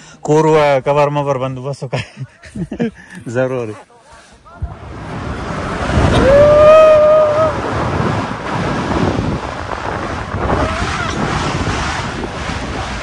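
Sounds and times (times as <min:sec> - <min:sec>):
snow tube sliding on snow: 0:04.5 - 0:13.0
wind on microphone: 0:04.5 - 0:13.0
person yelling: 0:06.1 - 0:07.6.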